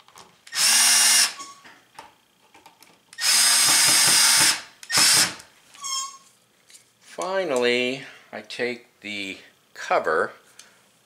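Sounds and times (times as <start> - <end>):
cordless drill driving screw: 0.5 - 1.5, 3.2 - 5.4.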